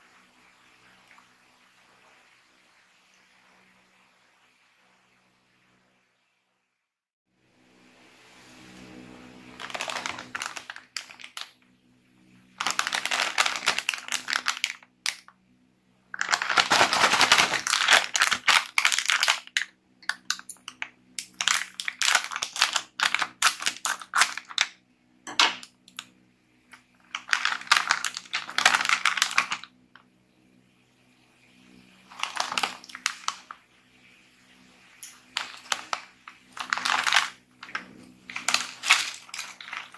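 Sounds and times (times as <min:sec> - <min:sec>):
plastic chip bag crinkling: 0:09.5 - 0:11.6, 0:12.6 - 0:15.3, 0:16.1 - 0:24.7, 0:26.7 - 0:29.8, 0:32.0 - 0:33.6, 0:35.0 - 0:39.9.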